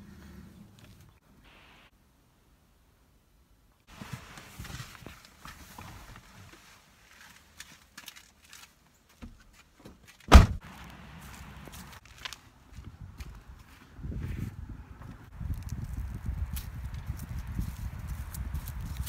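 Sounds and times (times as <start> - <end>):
car door shutting: 10.3 - 10.6.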